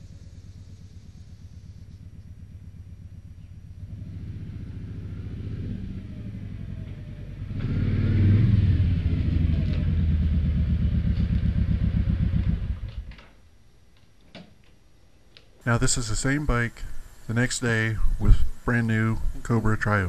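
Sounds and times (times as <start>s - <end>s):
motorcycle engine idling: 0.0s - 13.1s
motorcycle riding up: 0.0s - 13.2s.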